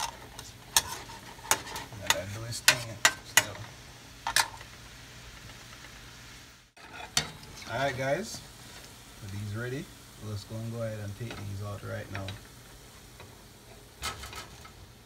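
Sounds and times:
utensil scraping a frying pan: 0:00.0 - 0:04.8, 0:06.8 - 0:09.0
faint sizzle: 0:00.0 - 0:15.0.

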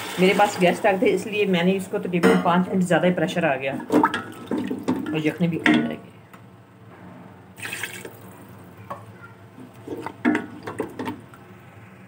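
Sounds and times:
stock sloshing in a pot: 0:03.8 - 0:05.4, 0:07.6 - 0:08.5, 0:09.7 - 0:11.3.

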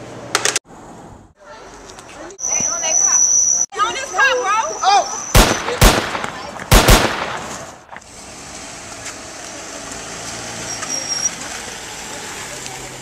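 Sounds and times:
gunshots: 0:05.3 - 0:08.0.

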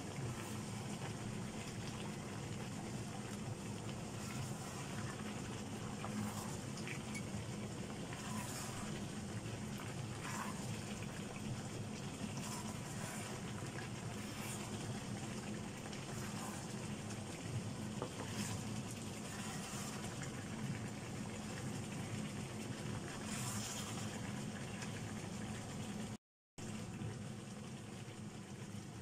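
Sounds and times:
wooden spatula scraping wok: 0:00.0 - 0:02.0, 0:03.9 - 0:20.5, 0:23.1 - 0:24.3
chicken sizzling in a wok: 0:00.0 - 0:25.4.

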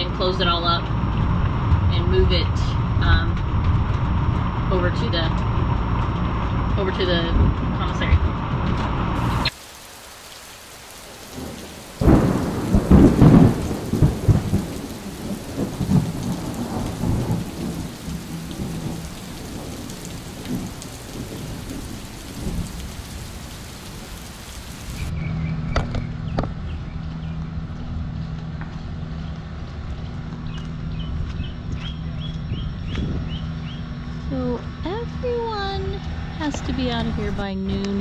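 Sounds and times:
heavy rain falling: 0:08.7 - 0:25.1
thunder rumbling: 0:10.6 - 0:30.2.

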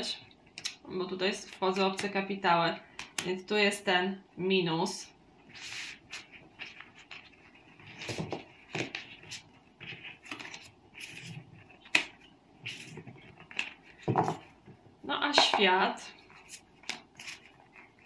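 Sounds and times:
cards sliding across cloth: 0:05.5 - 0:08.2.

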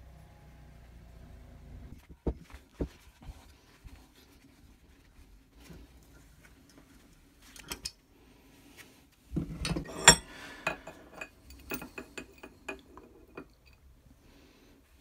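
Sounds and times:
spanner clanking on steel: 0:09.6 - 0:13.5.

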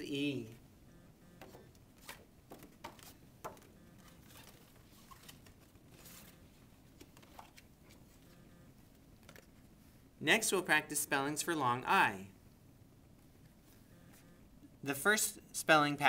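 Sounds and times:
paper rustling: 0:01.4 - 0:08.2.

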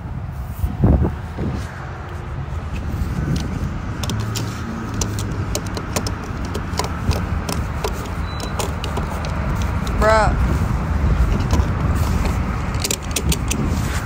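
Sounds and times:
low engine rumble: 0:00.0 - 0:14.0
sharp clicks: 0:02.8 - 0:10.0, 0:11.4 - 0:13.7.

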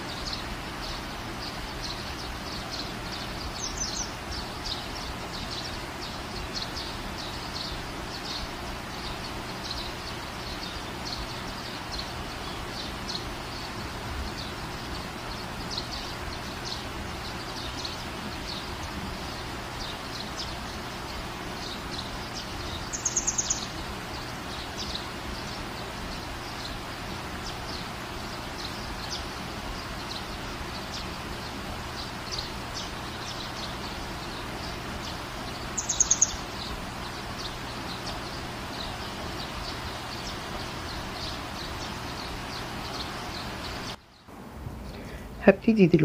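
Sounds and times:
background hiss: 0:00.0 - 0:46.0
high chirps: 0:35.0 - 0:42.0.

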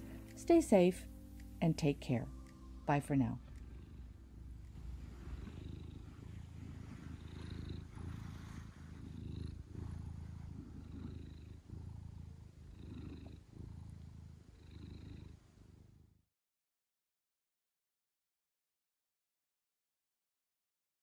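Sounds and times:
cat purring: 0:00.0 - 0:16.2.

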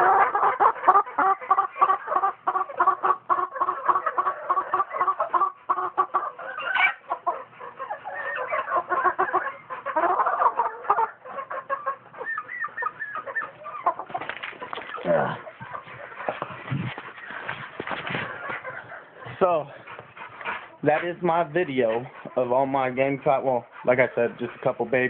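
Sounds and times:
chickens clucking: 0:00.0 - 0:25.0.

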